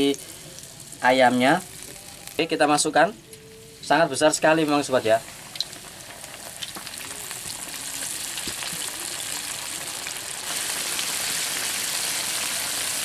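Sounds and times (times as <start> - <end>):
chicken deep-frying in oil: 4.4 - 13.0.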